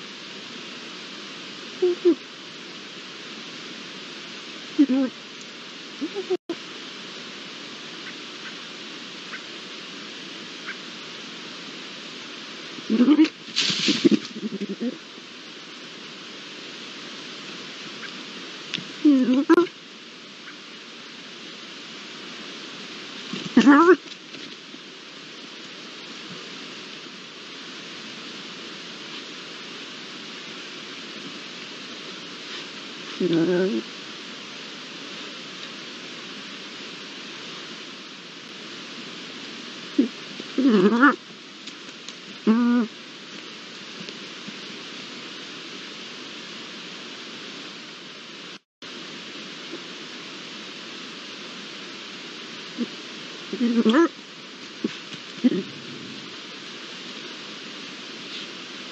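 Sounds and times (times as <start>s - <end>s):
outdoor background hiss: 0.0s - 58.9s.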